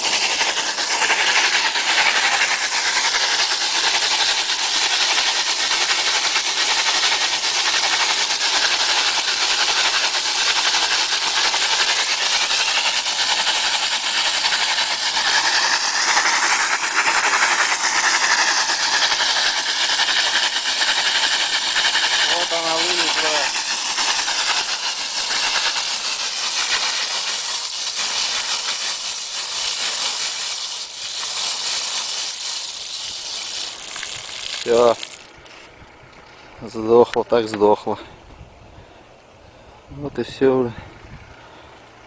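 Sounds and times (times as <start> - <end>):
gas and mud jetting hiss: 0.0 - 38.0.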